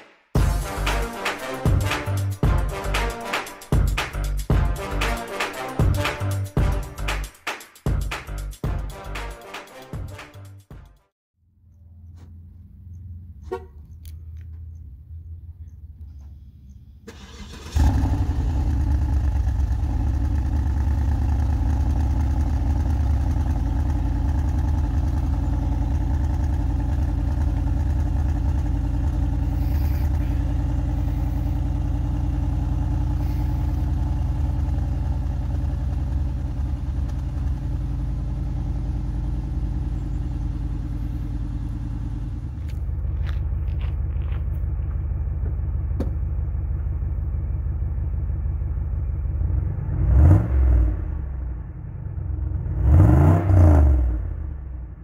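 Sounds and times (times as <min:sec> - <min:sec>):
car engine starting and idling: 0:11.7 - 0:55.0.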